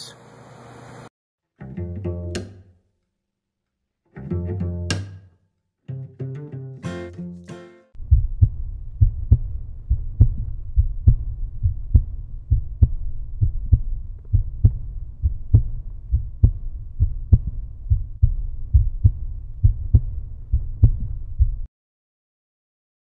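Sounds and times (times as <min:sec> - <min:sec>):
pulsing heartbeat-like music beat: 0:08.0 - 0:21.7.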